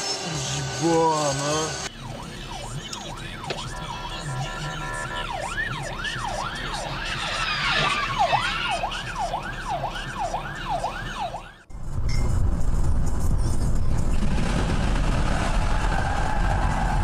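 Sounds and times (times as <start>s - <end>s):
emergency vehicle siren: 0.0s - 11.7s
road and engine noise: 0.0s - 17.0s.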